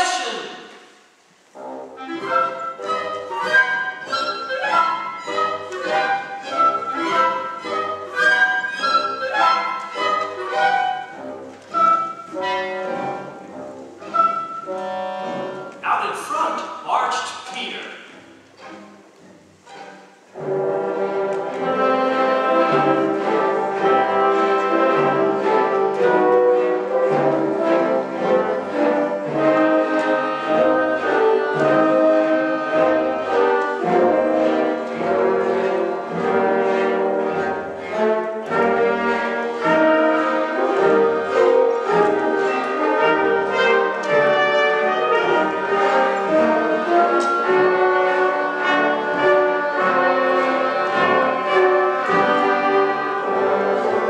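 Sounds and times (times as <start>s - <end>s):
symphony orchestra playing: 0.0s - 54.0s
brass section: 20.4s - 54.0s.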